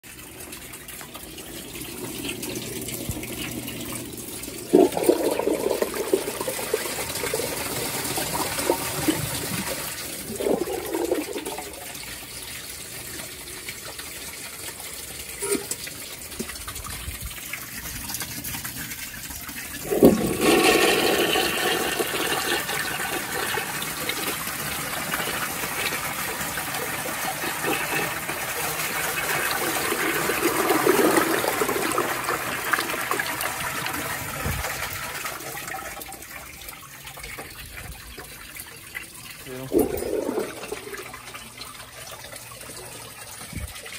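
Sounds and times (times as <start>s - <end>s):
toilet flushing: 0.0s - 43.9s.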